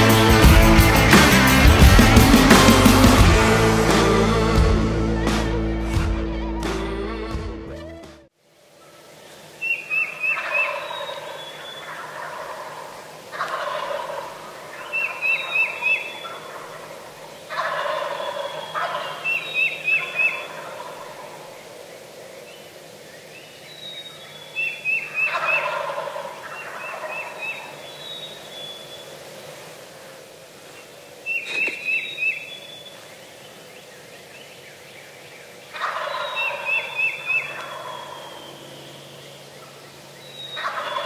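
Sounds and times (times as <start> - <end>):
turkey gobbling: 9.6 - 21.6, 24.6 - 29.0, 31.3 - 32.6, 35.6 - 41.0.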